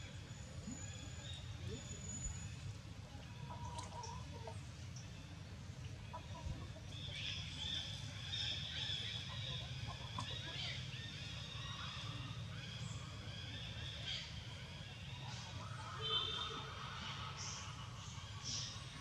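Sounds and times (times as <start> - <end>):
low steady rumble: 0.0 - 19.0
birds calling: 5.8 - 19.0.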